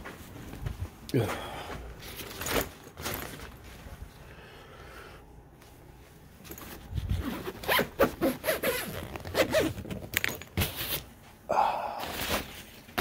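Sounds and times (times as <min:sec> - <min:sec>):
zipper being pulled: 0:06.8 - 0:11.0.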